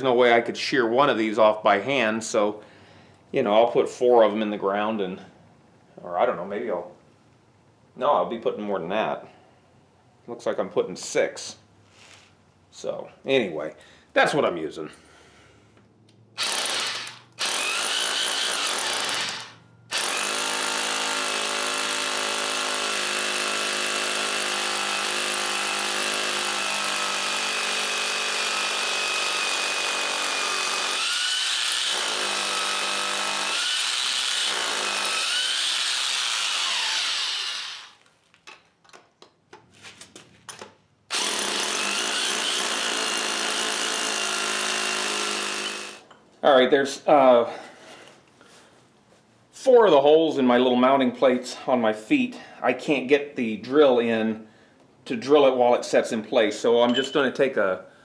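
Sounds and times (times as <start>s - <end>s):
hammer drill boring into concrete: 16.4s - 38.0s, 41.1s - 46.1s.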